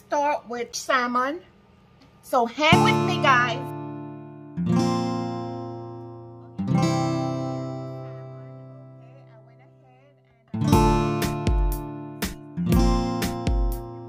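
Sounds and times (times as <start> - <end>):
strummed chords: 2.7 - 9.8, 10.6 - 14.0.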